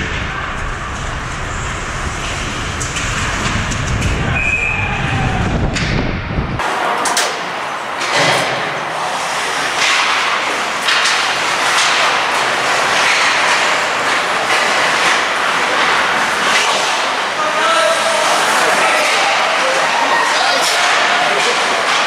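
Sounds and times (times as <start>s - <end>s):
hockey sticks and puck clacking: 6.6s - 8.8s, 9.4s - 22.0s
skate blades scraping ice: 9.1s - 22.0s.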